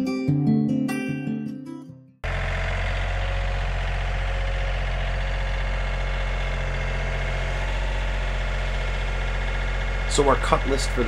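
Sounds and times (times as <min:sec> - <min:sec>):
engine droning: 0:02.2 - 0:11.0.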